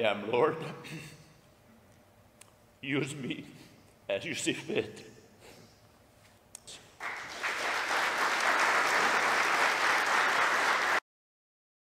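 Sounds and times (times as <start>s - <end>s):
audience applause: 7.0s - 11.0s.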